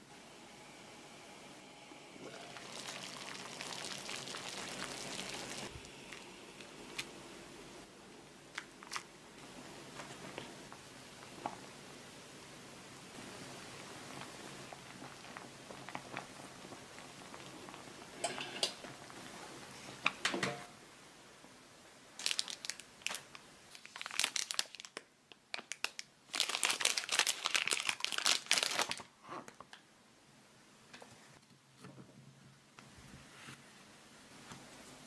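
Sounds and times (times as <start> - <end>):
boiling water hissing: 0.0 - 7.9, 9.4 - 20.1
plastic wrapper crinkling and tearing: 2.6 - 6.3, 8.5 - 9.1, 22.2 - 29.8.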